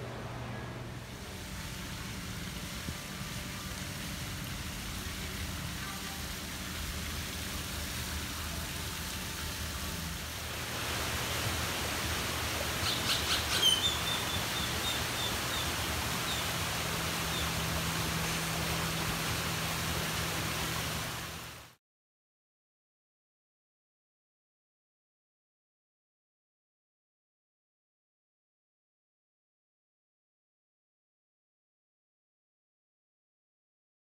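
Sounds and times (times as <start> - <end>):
steady outdoor hiss: 0.0 - 21.8
small bird chirping: 12.8 - 15.7.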